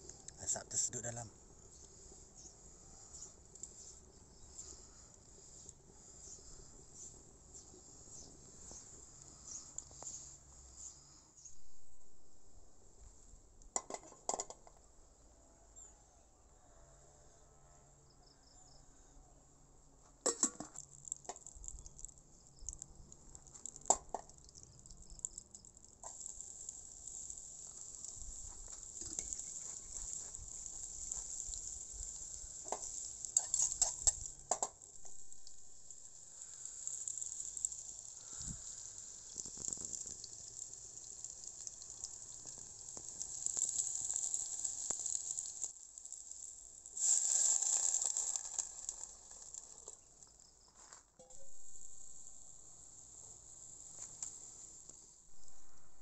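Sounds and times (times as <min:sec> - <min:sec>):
onions sizzling in oil: 0:01.7 - 0:11.1, 0:20.8 - 0:50.6, 0:51.4 - 0:55.3.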